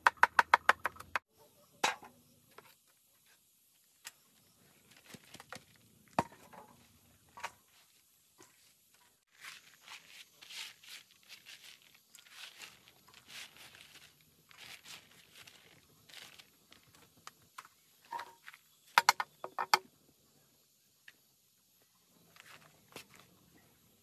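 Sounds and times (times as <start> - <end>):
hands rustling on plastic tarp: 7.7 - 17.0.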